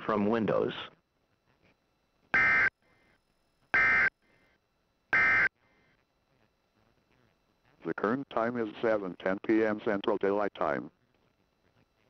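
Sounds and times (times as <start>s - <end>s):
buzzy digital data warbles: 2.3s - 2.7s, 3.7s - 4.1s, 5.2s - 5.5s.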